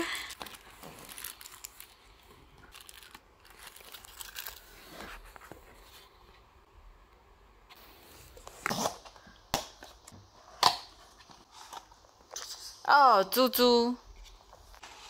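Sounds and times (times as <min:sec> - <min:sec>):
plastic wrapper crinkling: 0:00.4 - 0:04.9.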